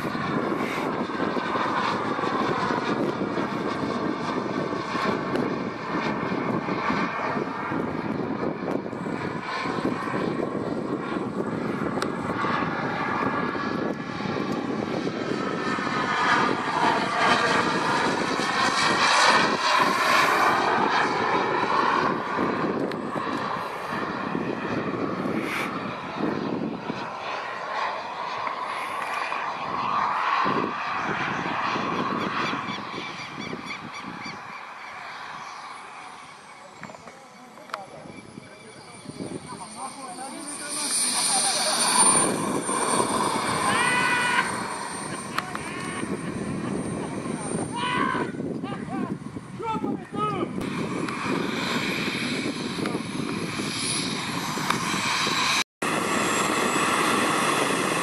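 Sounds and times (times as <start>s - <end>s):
model jet turbine rush and whine: 0.0s - 58.0s.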